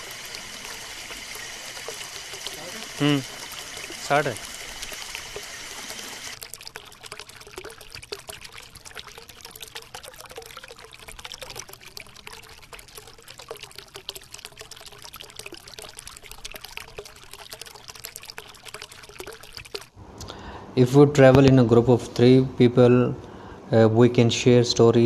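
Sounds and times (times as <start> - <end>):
stream splashing over stones: 0.0 - 8.4.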